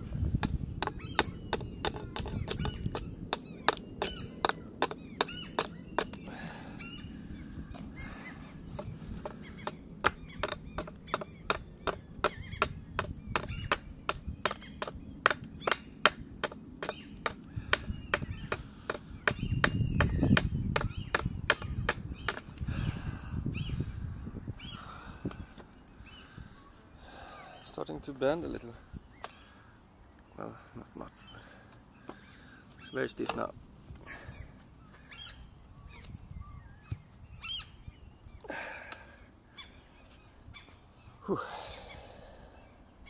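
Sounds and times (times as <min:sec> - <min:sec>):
hatchet chopping wood: 0:00.4 - 0:06.2, 0:08.8 - 0:22.5.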